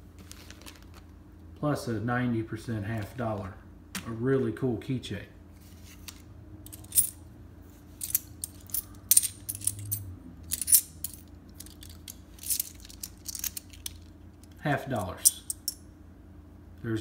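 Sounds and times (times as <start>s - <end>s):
coins clinking: 6.7s - 7.3s, 7.9s - 15.8s.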